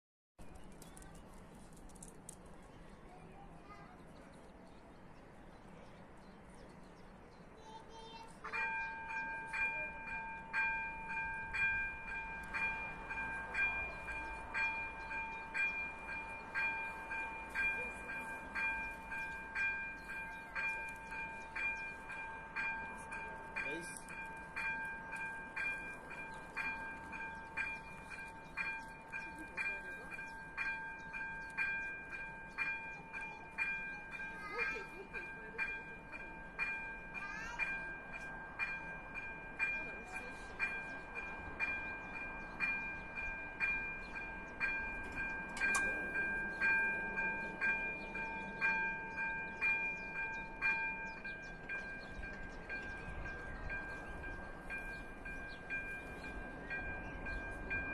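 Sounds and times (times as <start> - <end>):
level crossing warning bell ringing: 8.4 - 57.9.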